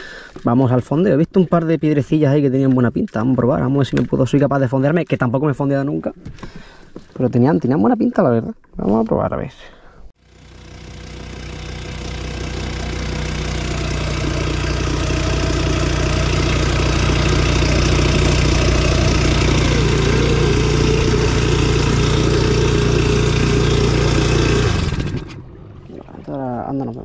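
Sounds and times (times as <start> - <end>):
outboard motor running: 10.2 - 27.0.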